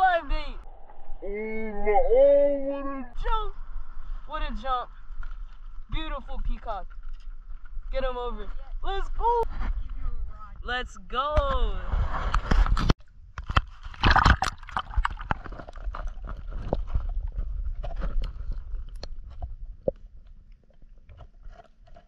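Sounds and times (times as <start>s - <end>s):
gurgling water: 13.8s - 22.0s.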